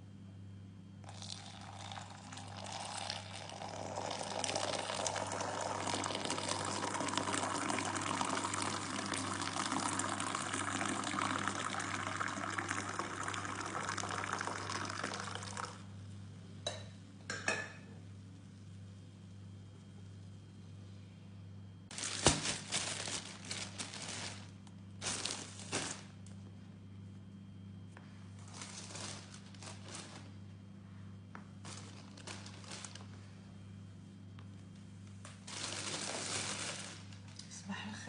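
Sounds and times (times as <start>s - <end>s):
milkshake pouring into a mug: 1.0s - 16.0s.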